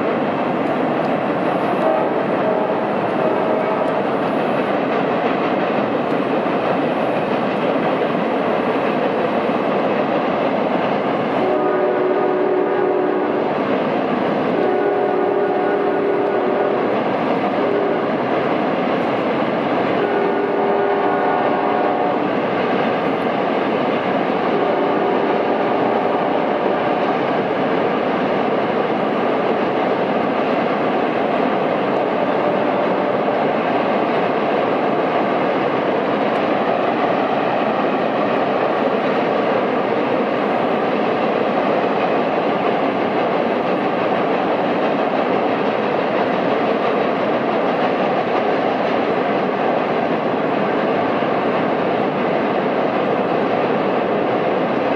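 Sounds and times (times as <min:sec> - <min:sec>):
train wheels rumbling on bridge: 0:00.0 - 0:54.9
locomotive horn: 0:01.8 - 0:04.1, 0:11.4 - 0:13.5, 0:14.5 - 0:17.0, 0:17.6 - 0:18.2, 0:20.0 - 0:22.2, 0:24.5 - 0:27.1, 0:32.2 - 0:33.4.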